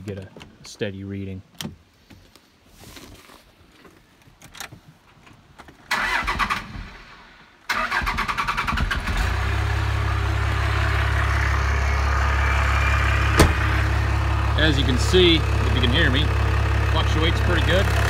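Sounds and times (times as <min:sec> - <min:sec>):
diesel engine starter cranking: 0:05.9 - 0:07.0, 0:07.7 - 0:18.0
diesel engine idling: 0:07.8 - 0:18.0.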